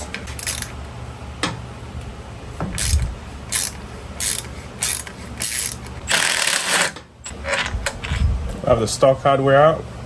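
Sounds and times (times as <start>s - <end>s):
ratchet wrench clicking: 0.4s - 0.7s, 2.8s - 6.9s.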